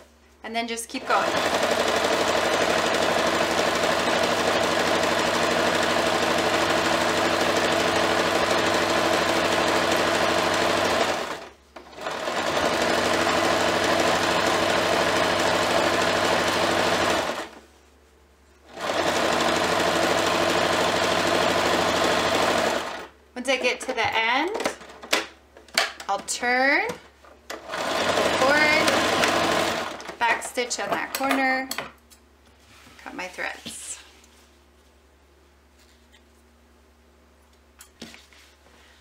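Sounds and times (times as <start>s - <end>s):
sewing machine running: 1.0s - 17.6s, 18.7s - 23.1s, 27.5s - 30.4s.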